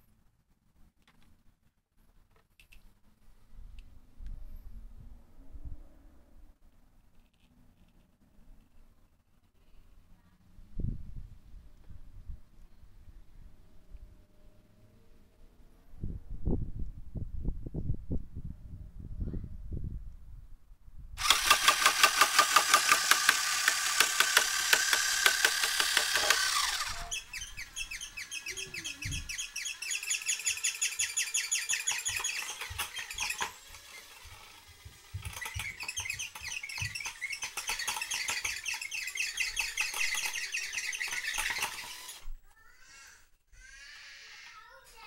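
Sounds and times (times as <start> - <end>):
cordless drill whining: 21.2 - 42.4
electric motor rattling: 21.2 - 42.4.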